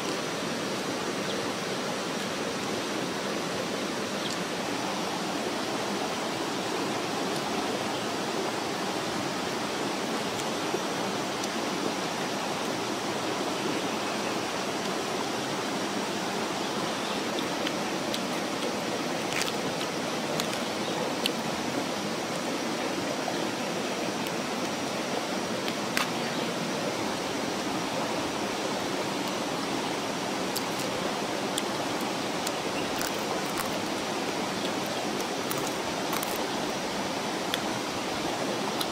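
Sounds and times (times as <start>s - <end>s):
stream flowing over rocks: 0.0s - 38.9s.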